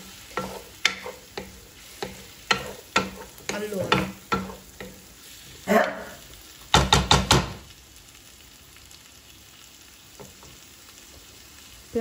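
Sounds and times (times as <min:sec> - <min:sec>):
wooden spoon scraping: 0:00.0 - 0:05.6
vegetables sizzling in a frying pan: 0:00.0 - 0:12.0
spoon knocking against pan: 0:00.4 - 0:05.0, 0:06.7 - 0:07.6.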